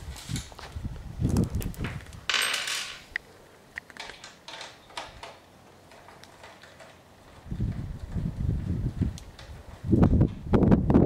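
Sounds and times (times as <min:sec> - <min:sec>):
metal bolts and tools rattling: 0:02.3 - 0:03.2, 0:03.9 - 0:07.8.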